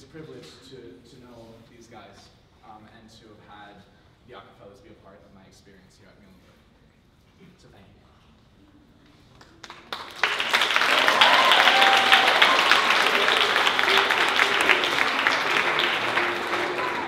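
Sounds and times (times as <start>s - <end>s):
audience applauding: 9.4s - 17.0s.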